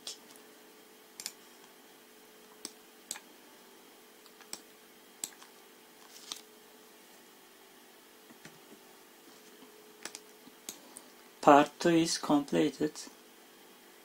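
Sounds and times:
faint steady hum: 0:00.0 - 0:14.0
mouse and keyboard clicks: 0:10.0 - 0:10.8.

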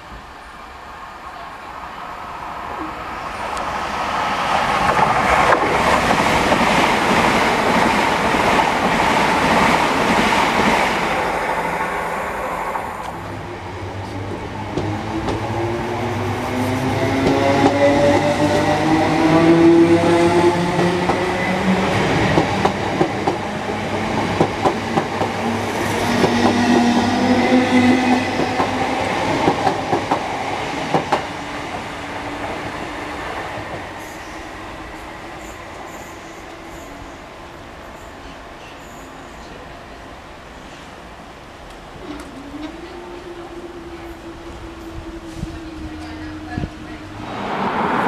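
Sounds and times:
electric train whine: 0:41.4 - 0:48.0.

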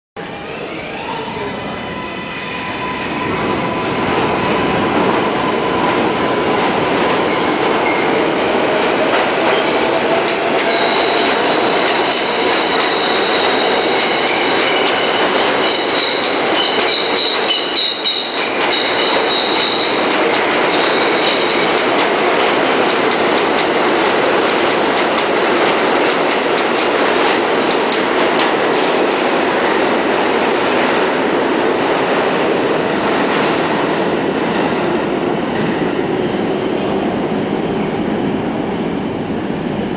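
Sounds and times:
subway train rumble: 0:00.2 - 0:39.9
high-pitched wheel squeal: 0:12.2 - 0:20.0.

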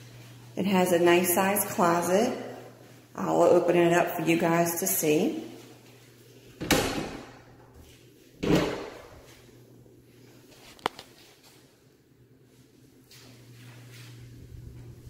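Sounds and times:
closet doors swishing open: 0:08.4 - 0:09.2.

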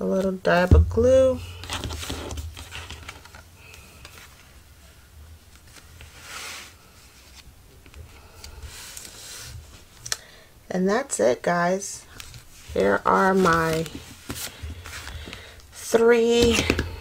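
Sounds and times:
low steady hum: 0:00.0 - 0:17.0
paper rustling and rubbing: 0:01.6 - 0:03.4, 0:12.1 - 0:15.5.

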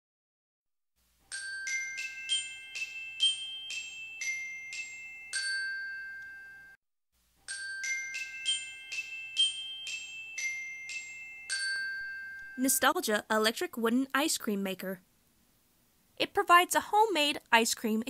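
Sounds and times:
bell-like mallet jingle: 0:01.3 - 0:06.8, 0:07.4 - 0:13.0.

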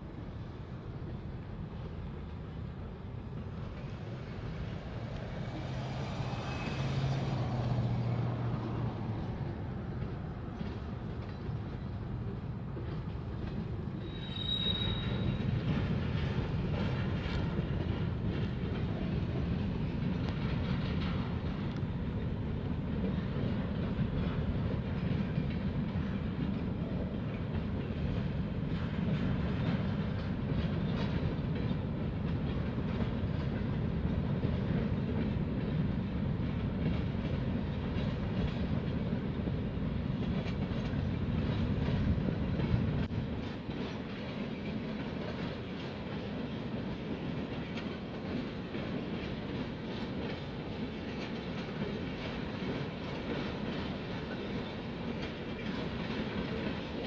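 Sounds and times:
low train rumble: 0:00.0 - 0:57.0
train wheels clicking over rail joints: 0:00.1 - 0:57.0.

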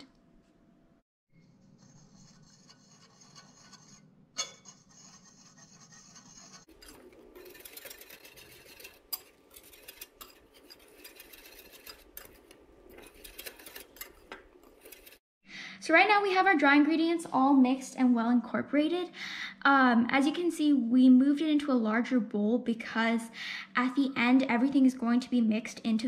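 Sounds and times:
whisk stirring flour in bowl: 0:04.6 - 0:15.2.

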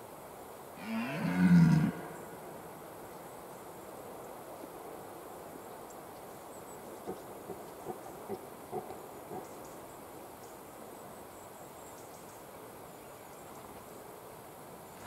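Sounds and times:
deer stag roaring: 0:00.8 - 0:02.2.

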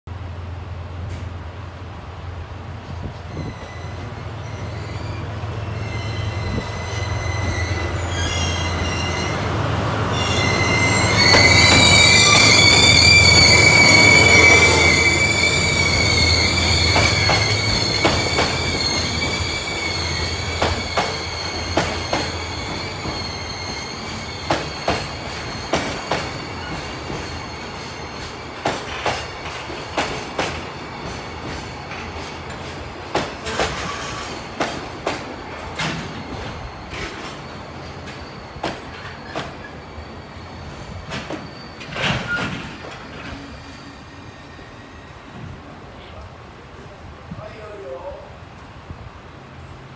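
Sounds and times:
train brake squeal: 0:03.2 - 0:09.5, 0:10.1 - 0:32.8, 0:33.4 - 0:34.6, 0:35.8 - 0:45.6.

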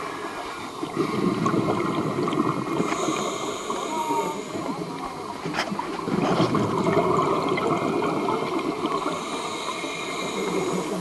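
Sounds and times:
air bubbling underwater: 0:00.9 - 0:03.0, 0:06.1 - 0:09.2.

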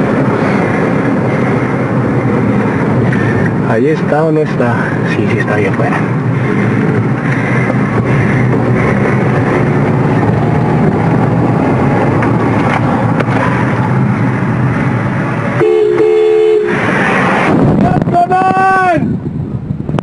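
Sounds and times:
car engine and road noise: 0:00.0 - 0:20.0
car horn honk: 0:15.6 - 0:16.8.

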